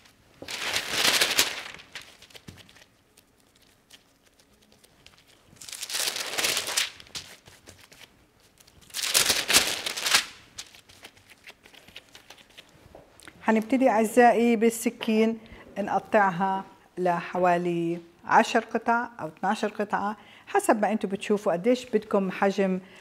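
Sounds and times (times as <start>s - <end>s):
baking paper crinkling: 0.0s - 12.8s.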